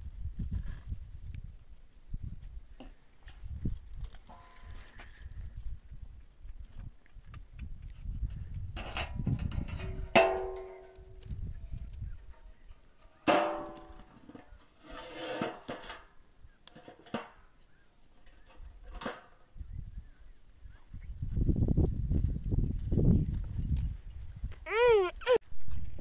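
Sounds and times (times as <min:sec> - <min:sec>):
iron griddle clanging on stones: 0:04.3 - 0:04.7, 0:08.8 - 0:11.2, 0:13.0 - 0:17.6, 0:18.2 - 0:19.4
griddle knocks and scrape: 0:08.8 - 0:11.1, 0:13.0 - 0:17.4.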